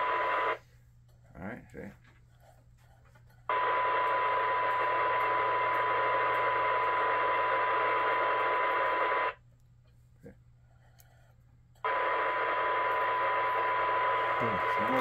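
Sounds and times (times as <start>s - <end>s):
radio hiss: 12.0s - 15.0s.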